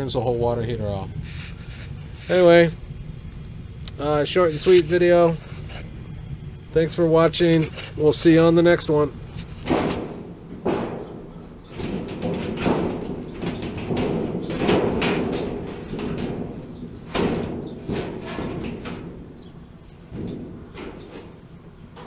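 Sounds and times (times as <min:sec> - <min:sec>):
thin metal door knocking and rattling: 0:09.7 - 0:19.5.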